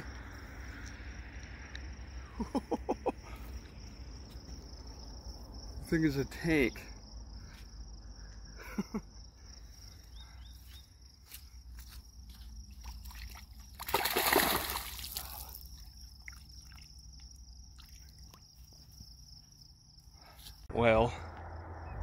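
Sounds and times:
high insect trill: 0.0s - 21.9s
fish splashing into water: 12.8s - 16.9s.

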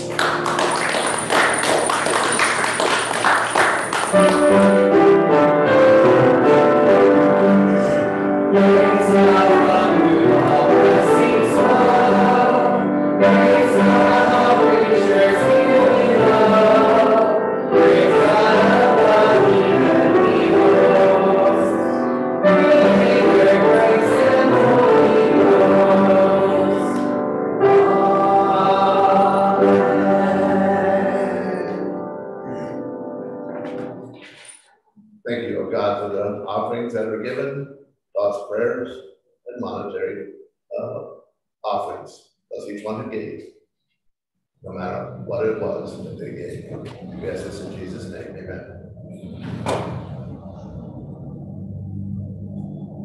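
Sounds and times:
electric keyboard chords: 0.0s - 34.4s.

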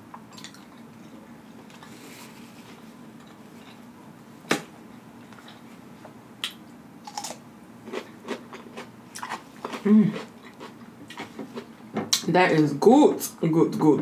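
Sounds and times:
chewing crunches: 6.4s - 11.7s.

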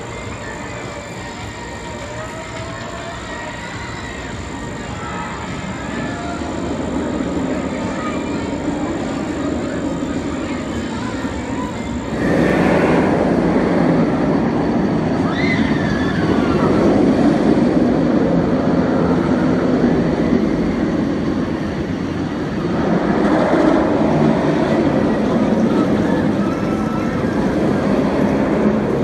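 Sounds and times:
roller coaster wheels on steel rail: 0.0s - 29.0s.

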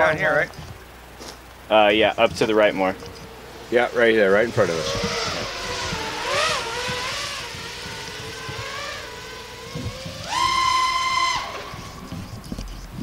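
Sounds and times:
quadcopter motors whining: 0.0s - 13.0s.

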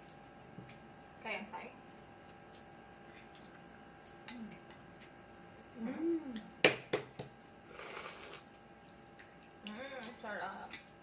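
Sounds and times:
person humming: 5.8s - 6.5s.

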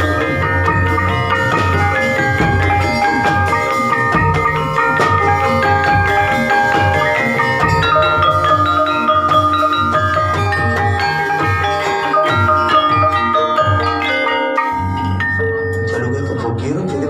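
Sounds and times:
steady drum beat: 0.0s - 16.4s
metallophone notes ringing: 0.0s - 17.0s.

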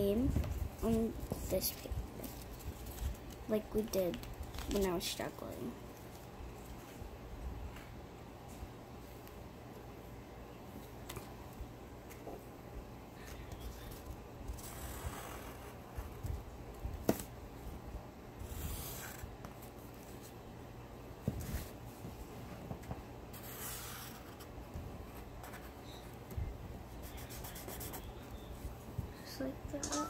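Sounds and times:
pencil scratching on paper: 23.3s - 24.5s, 27.0s - 28.2s.

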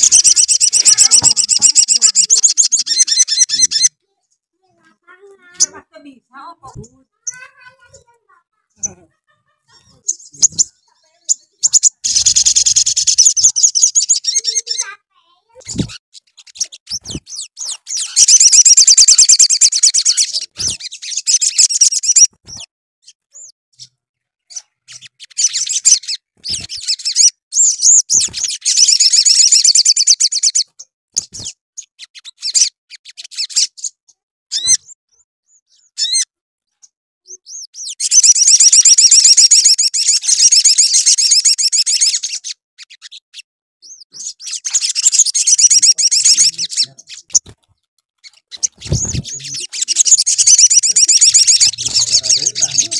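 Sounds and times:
bird short chirps: 0.0s - 4.0s, 15.6s - 23.9s, 24.5s - 43.2s.

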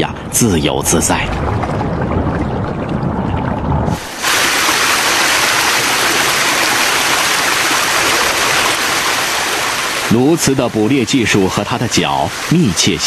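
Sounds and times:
low muffled rumble: 0.0s - 4.1s
river water flowing over rocks: 4.0s - 13.0s.

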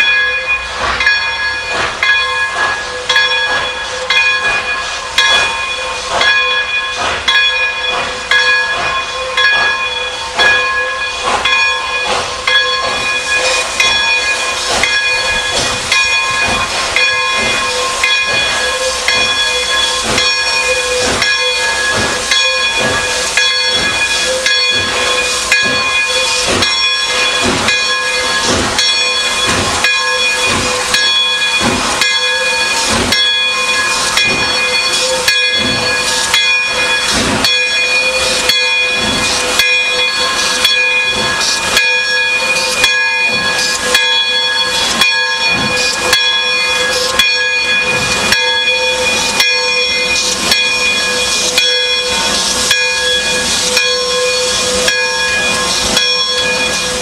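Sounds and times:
loud steam hiss: 0.0s - 57.0s
steam locomotive exhaust beats: 0.0s - 57.0s
whistling steam tone: 0.0s - 57.0s.

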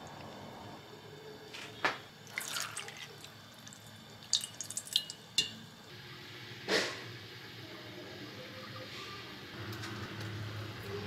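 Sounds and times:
brine dripping: 2.2s - 5.9s.

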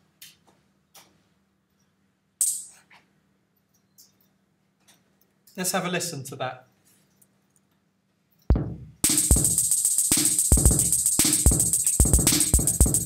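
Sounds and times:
programmed drum beat: 2.4s - 2.7s, 8.5s - 13.0s
hi-hats: 2.4s - 2.9s, 8.5s - 13.0s
kick drum: 8.5s - 13.0s.

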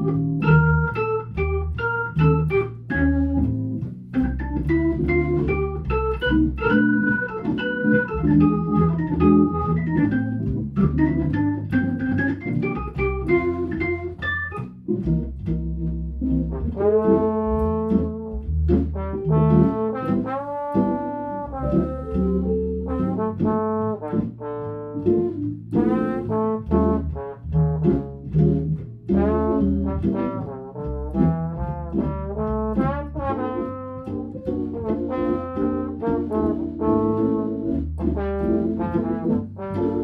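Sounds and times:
organ jazz solo: 0.0s - 40.0s
walking bass line: 0.0s - 40.0s
trombone long notes: 16.5s - 25.2s, 25.8s - 28.0s, 29.2s - 34.2s, 34.8s - 40.0s.

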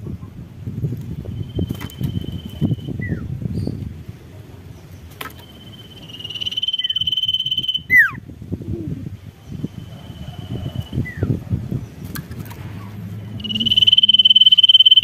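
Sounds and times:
bird singing: 1.2s - 3.8s, 4.6s - 8.2s, 12.8s - 15.0s.

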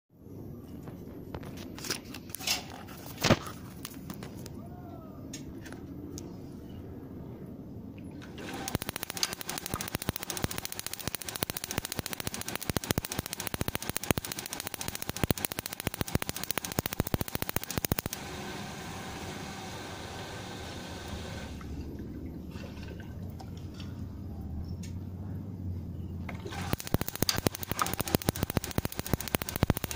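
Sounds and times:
water heater clicking rapidly: 8.6s - 18.2s, 26.7s - 29.9s.

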